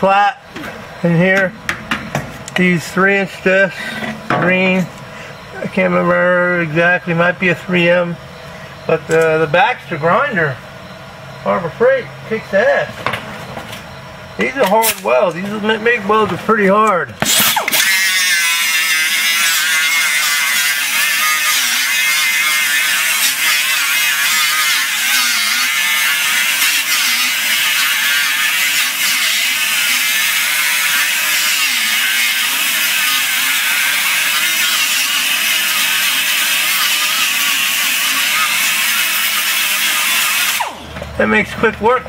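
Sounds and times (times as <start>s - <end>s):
angle grinder grinding metal: 14.4s - 42.0s.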